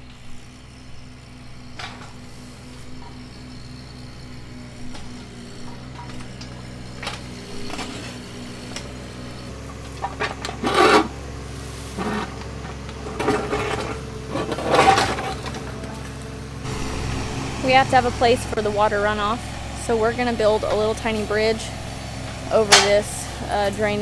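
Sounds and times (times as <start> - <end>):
excavator engine running: 0.0 - 24.0
bucket scraping rocky soil: 9.9 - 15.8.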